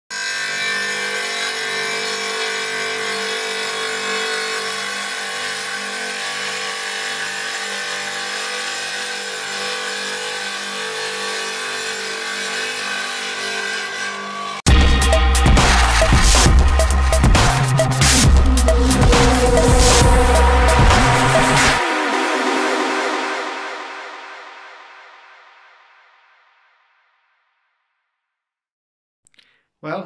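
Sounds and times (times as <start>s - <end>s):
wet tile saw cutting tile: 0.1s - 21.9s.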